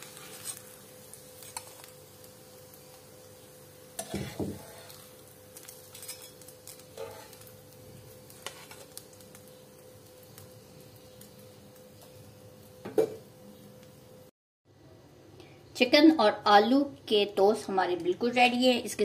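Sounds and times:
oil sizzling: 0.0 - 14.3
tongs scraping frying pan: 1.4 - 1.9, 4.0 - 7.5, 8.3 - 9.0.

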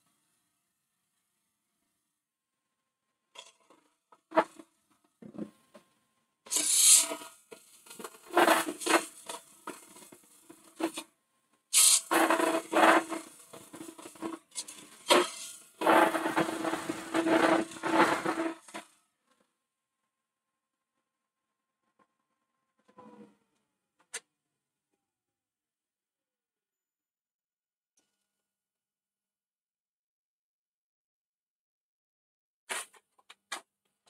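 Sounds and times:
lathe tool scraping wood: 11.8 - 18.8.

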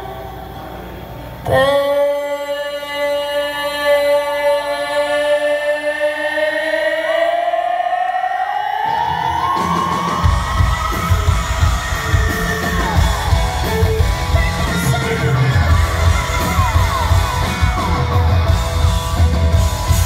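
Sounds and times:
woman singing: 1.4 - 7.8, 10.2 - 18.5
long rising tone: 6.6 - 20.0
crowd yelling: 6.8 - 20.0
live rock band playing: 9.2 - 20.0.

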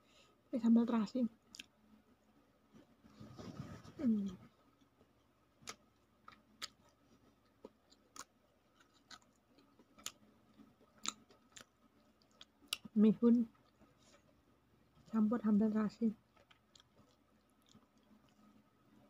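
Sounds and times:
person chewing food: 1.5 - 1.7, 4.7 - 12.9, 13.5 - 15.1, 16.2 - 19.0.

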